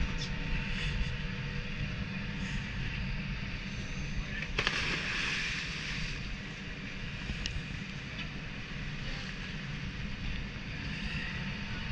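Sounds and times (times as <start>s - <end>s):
low boat rumble: 0.0s - 11.9s
water splashing: 4.6s - 6.2s.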